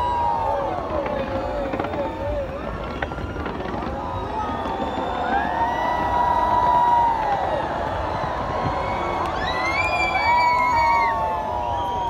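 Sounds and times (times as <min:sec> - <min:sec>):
long held whoop: 0:00.0 - 0:02.2, 0:03.8 - 0:12.0
crowd cheering and whooping: 0:00.0 - 0:12.0.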